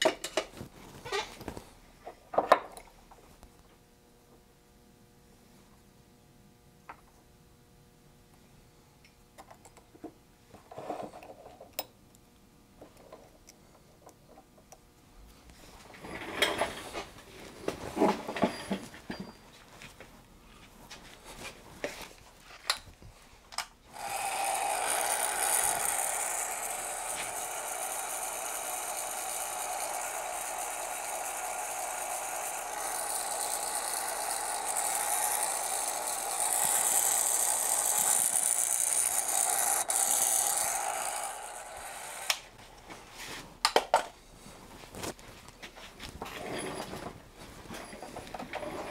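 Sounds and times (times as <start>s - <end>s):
heat gun blowing: 23.9s - 42.6s.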